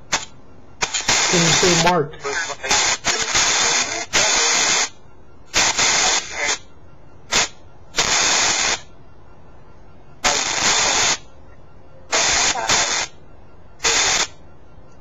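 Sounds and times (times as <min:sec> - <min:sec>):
choppy bursts of radio static: 0:00.1 - 0:06.7, 0:07.3 - 0:08.9, 0:10.2 - 0:11.3, 0:12.1 - 0:13.2, 0:13.8 - 0:14.4.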